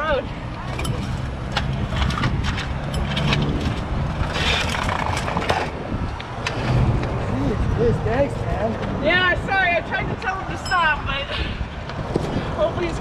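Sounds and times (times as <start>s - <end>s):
scooter scraping and clicking: 0.5s - 7.4s.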